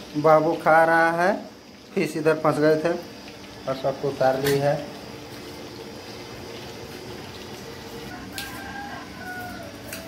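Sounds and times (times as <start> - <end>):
rooster crowing: 8.0 - 10.0.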